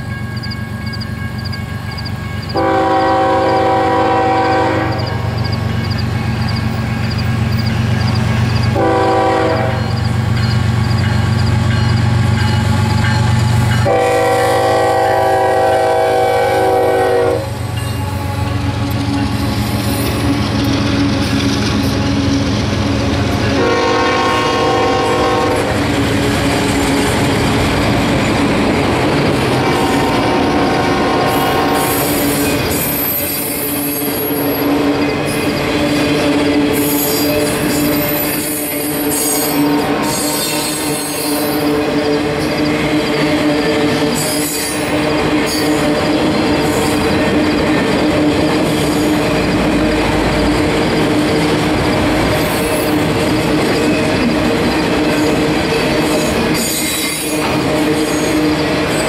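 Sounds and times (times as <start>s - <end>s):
locomotive engine rumble: 0.0s - 33.0s
train air horn blasts: 2.6s - 5.4s, 8.8s - 10.0s, 13.8s - 18.7s, 23.6s - 25.8s, 29.6s - 32.4s, 38.6s - 41.6s.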